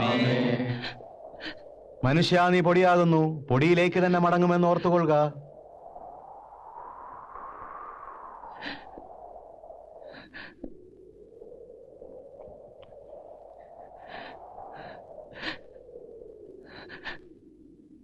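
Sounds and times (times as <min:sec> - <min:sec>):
low wavering drone: 0:00.0 - 0:01.6
people sobbing: 0:00.0 - 0:01.6
gasping breaths: 0:08.5 - 0:09.1, 0:10.0 - 0:11.0, 0:13.6 - 0:17.6.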